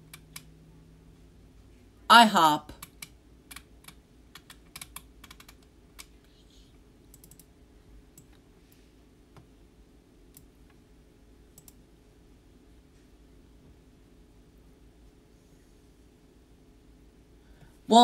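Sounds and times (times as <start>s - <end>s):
low steady hum: 0.0s - 18.0s
faint irregular clicking: 7.1s - 7.5s, 11.5s - 11.8s.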